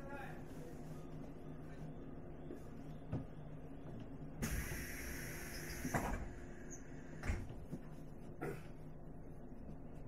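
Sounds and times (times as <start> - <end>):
train car equipment humming: 0.0 - 10.0
pneumatic train doors hissing: 4.4 - 7.5.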